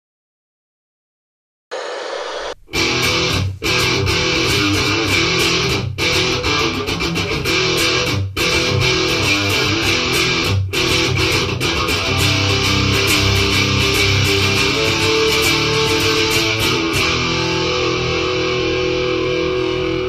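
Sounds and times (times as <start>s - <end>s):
static-like noise burst: 1.7s - 3.4s
distorted electric guitar riff: 1.7s - 20.0s.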